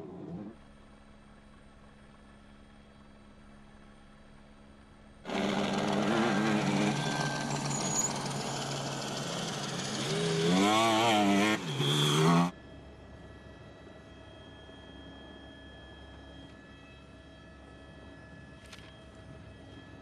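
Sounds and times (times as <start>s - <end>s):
rally car engine revving: 5.3s - 12.5s
rough noisy rush: 5.3s - 12.5s.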